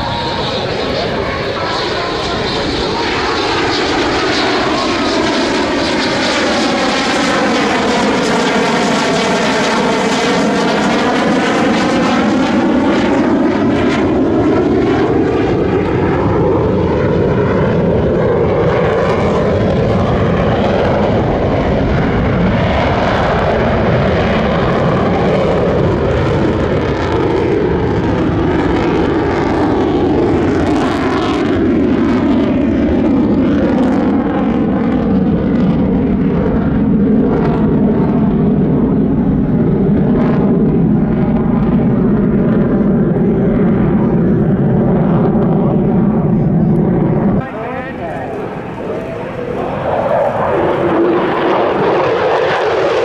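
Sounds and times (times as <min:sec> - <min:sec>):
jet passing overhead: 0:00.0 - 0:53.0.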